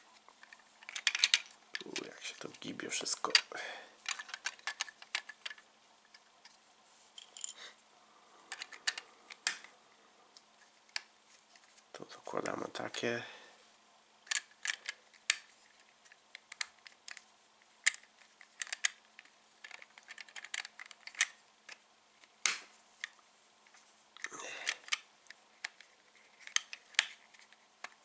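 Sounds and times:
plastic bricks clicking: 0.4s - 2.1s, 3.3s - 6.2s, 8.5s - 9.7s, 14.2s - 15.5s, 17.9s - 21.8s.

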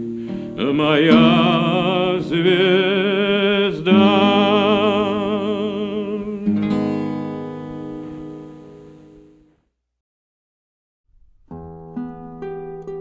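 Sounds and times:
man singing with vibrato: 0.0s - 8.7s
plucked string accompaniment: 11.2s - 13.0s.

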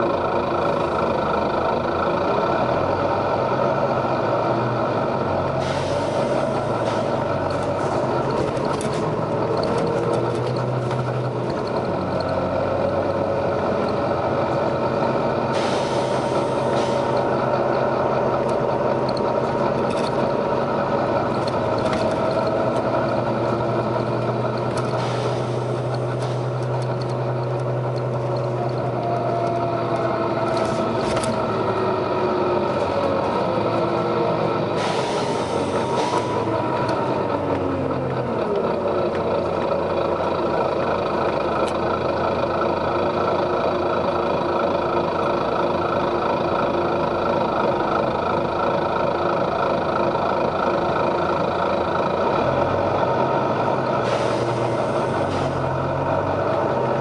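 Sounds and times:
bus diesel engine running: 0.0s - 57.0s
compressed air hisses: 15.5s - 17.2s, 34.8s - 36.3s, 54.0s - 55.5s.

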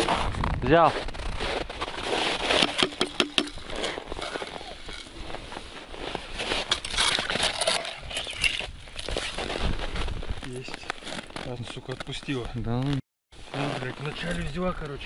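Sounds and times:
snow crunching: 0.0s - 8.0s, 13.4s - 15.0s
fishing line pulled by hand: 2.5s - 5.3s, 6.6s - 9.4s.

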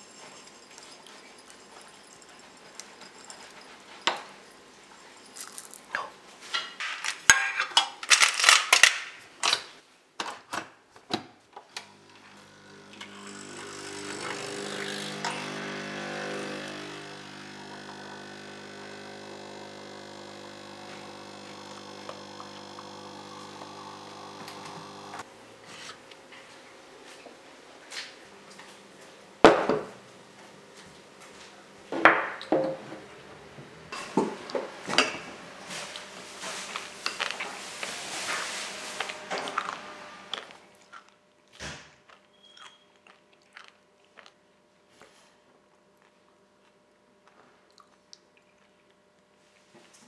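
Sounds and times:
nibs rattling out of glass bottle: 5.2s - 6.0s
coffee machine hissing: 11.8s - 25.3s
coffee machine pump humming: 11.8s - 25.3s.

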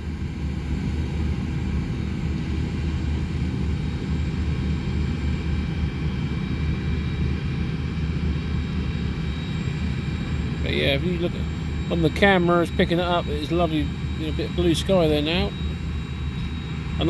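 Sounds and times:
combine harvester engine drone: 0.0s - 17.0s
faint machine whine: 0.0s - 17.0s.

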